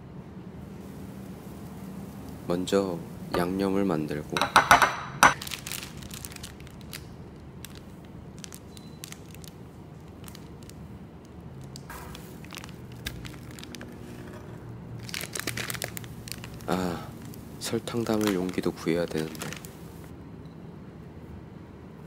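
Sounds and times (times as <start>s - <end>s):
plastic bag rustling: 5.4s - 10.9s, 11.6s - 20.1s
plastic packaging crinkling: 5.4s - 20.1s.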